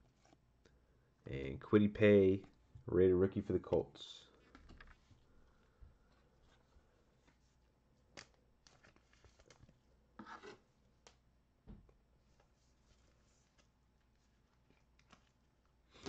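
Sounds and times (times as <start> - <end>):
cards and foil packs rustling: 8.2 - 9.8.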